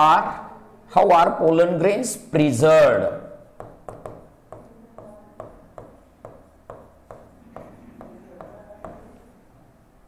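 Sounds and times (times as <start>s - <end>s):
stylus tapping on glass: 3.6s - 9.1s.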